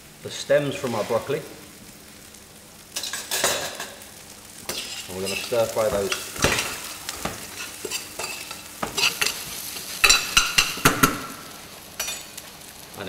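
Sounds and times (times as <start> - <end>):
vegetables sizzling in pan: 0.0 - 13.0
utensil scraping pan: 4.7 - 11.1.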